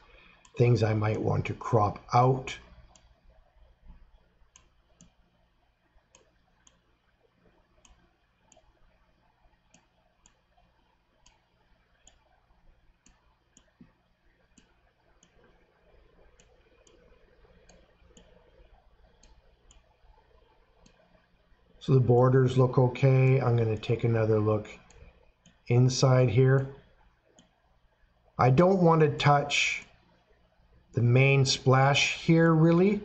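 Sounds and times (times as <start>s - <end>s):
faint computer mouse clicks: 2.8s - 3.1s, 3.9s - 5.2s, 6.1s - 6.8s, 7.8s - 8.7s, 9.6s - 10.5s, 11.2s - 12.4s, 13.0s - 15.6s, 16.2s - 19.9s, 20.8s - 21.3s, 24.8s - 25.6s.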